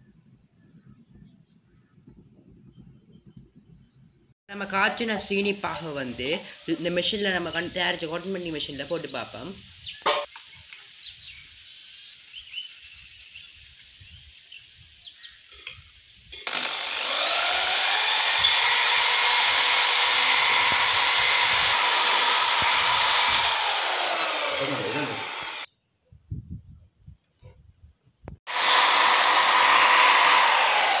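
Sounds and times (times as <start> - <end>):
electric drill motor whine: 16.4 - 25.7, 28.5 - 31.0.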